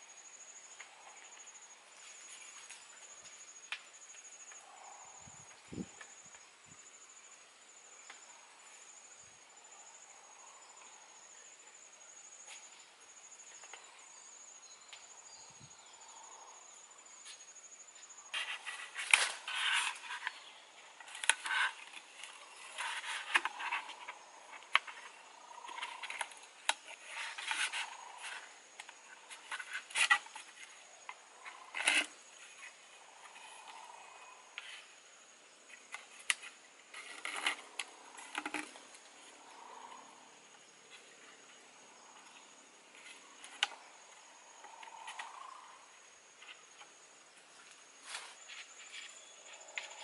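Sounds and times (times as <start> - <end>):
high insect trill: 0.0 - 50.0
bamboo poles scraping and knocking: 18.3 - 35.0, 35.6 - 39.4, 46.4 - 50.0.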